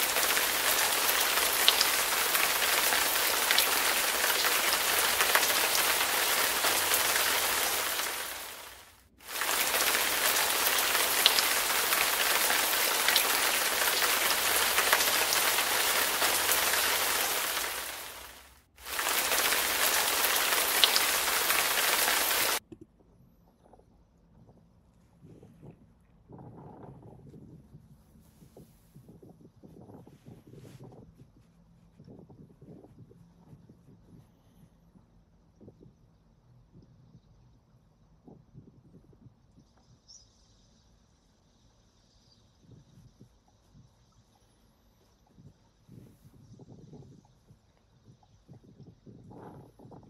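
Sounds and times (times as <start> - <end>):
heavy rain hissing: 0.0 - 22.6.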